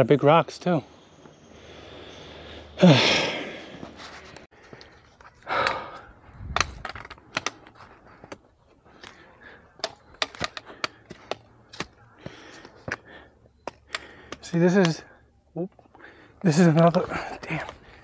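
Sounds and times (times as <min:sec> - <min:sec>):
heavy breath: 0:01.5 - 0:06.4, 0:07.4 - 0:15.3, 0:15.9 - 0:16.4.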